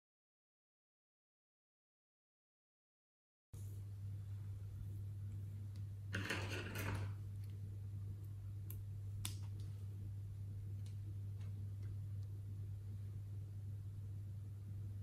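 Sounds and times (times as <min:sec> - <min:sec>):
steady low hum: 0:03.6 - 0:15.0.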